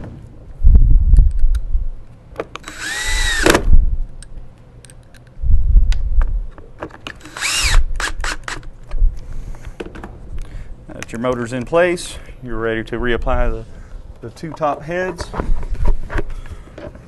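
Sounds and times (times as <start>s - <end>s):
cordless drill motor whine: 2.6s - 3.8s, 7.2s - 8.6s.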